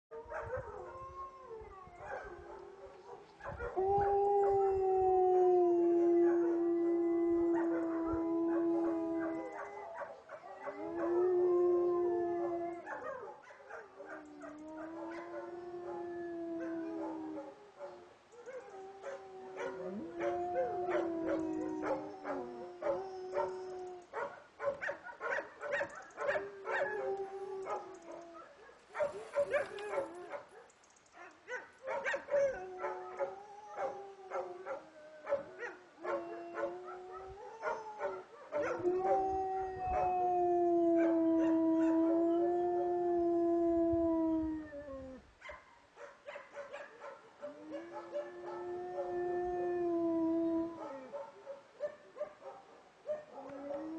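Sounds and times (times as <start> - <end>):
dogs howling: 0.2 - 30.6, 31.8 - 45.2, 46.5 - 53.9
dogs yipping and barking: 18.3 - 39.2, 45.4 - 48.7, 50.8 - 53.8.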